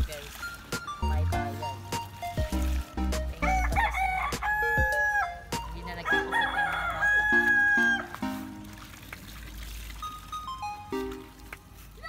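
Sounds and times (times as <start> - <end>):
rooster crowing: 3.5 - 5.4, 6.0 - 8.1.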